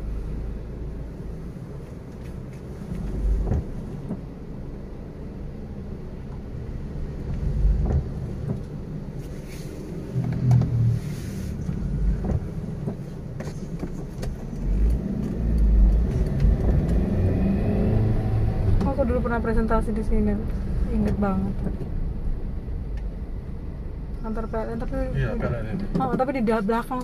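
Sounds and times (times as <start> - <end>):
engine and tyre rumble: 0.0 - 27.0.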